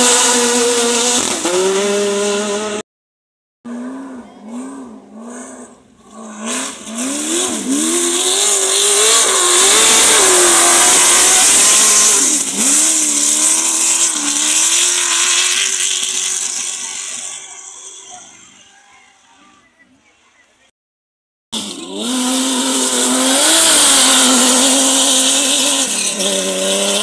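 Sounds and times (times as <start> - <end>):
buggy engine revving: 0.0 - 2.8, 3.6 - 18.5, 21.6 - 27.0
hiss of sand and wind: 8.5 - 17.8.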